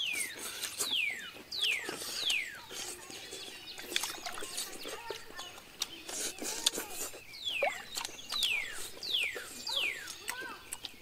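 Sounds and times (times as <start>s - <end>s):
bird whistled calls: 0.0s - 2.7s, 7.2s - 10.2s
people chewing with lip smacks: 0.0s - 11.0s.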